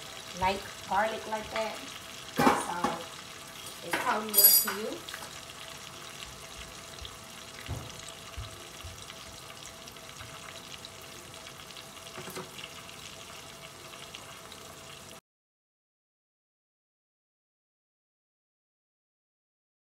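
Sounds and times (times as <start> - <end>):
garlic sizzling in butter: 0.0 - 15.2.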